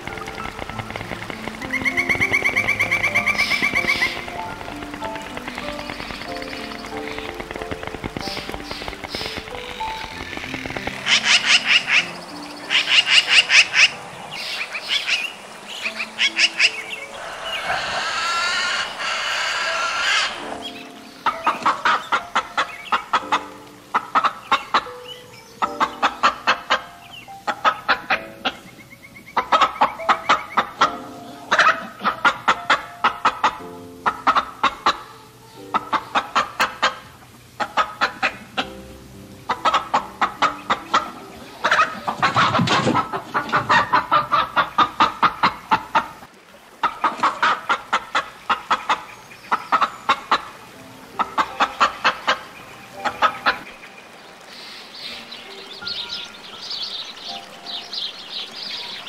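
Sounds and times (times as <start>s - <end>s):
rooster clucking: 16.3s - 20.6s, 39.5s - 49.1s.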